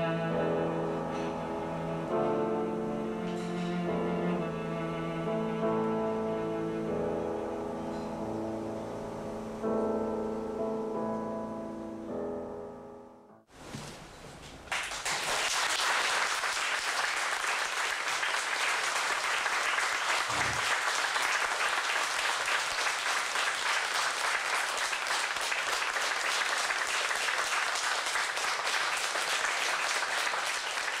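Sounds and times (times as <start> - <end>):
piano trio playing: 0.0 - 13.5
audience applauding: 14.7 - 31.0.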